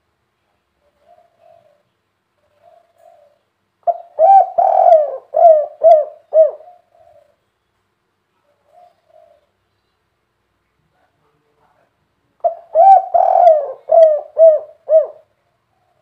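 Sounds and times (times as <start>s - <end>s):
dove cooing: 0.8s - 7.4s, 8.4s - 9.6s, 12.4s - 16.0s.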